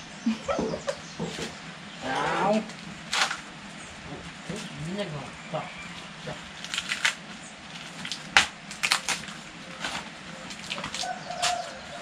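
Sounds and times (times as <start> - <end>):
corn husks rustling and snapping: 2.5 - 3.5, 6.5 - 11.8.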